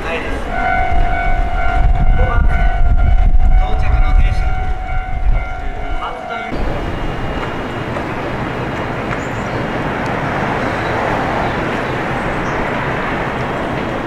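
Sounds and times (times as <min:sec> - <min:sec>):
electric train running past: 0:00.0 - 0:14.0.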